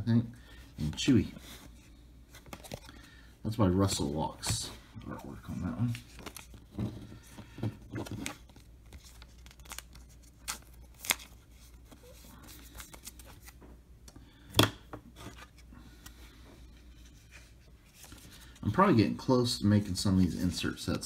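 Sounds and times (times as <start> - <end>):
cards and plastic wrapper rustling: 0.8 - 3.1, 3.8 - 13.7.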